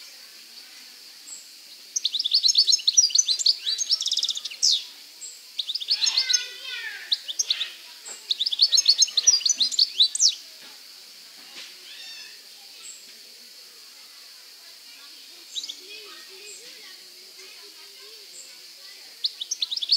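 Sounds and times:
bird twittering song: 0.0s - 10.5s, 15.4s - 16.9s, 18.0s - 19.9s.

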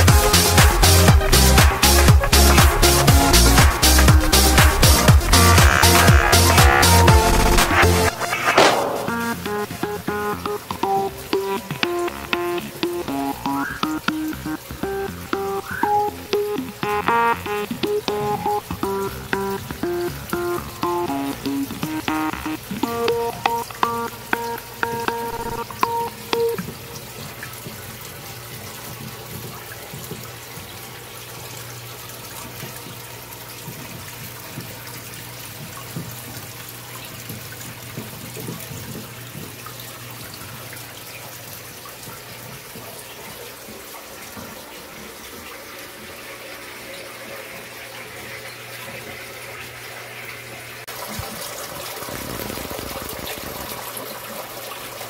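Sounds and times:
water splashing into tank: 50.9s - 55.0s.

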